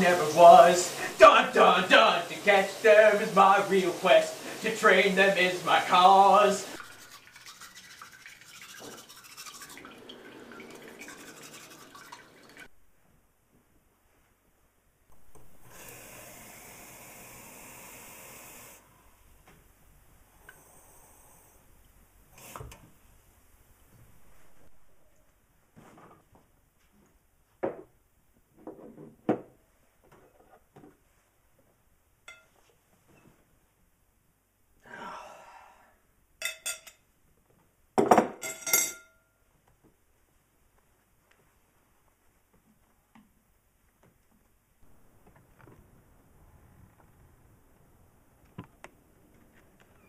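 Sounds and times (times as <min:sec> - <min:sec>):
brisk wet scrubbing: 0:00.0 - 0:12.7.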